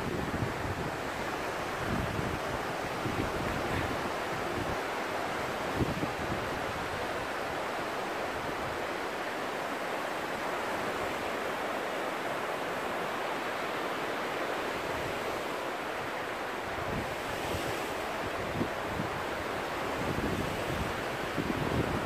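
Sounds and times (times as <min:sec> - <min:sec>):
wind buffeting microphone: 0:00.0 - 0:07.4
surf washing on shore: 0:00.0 - 0:22.0.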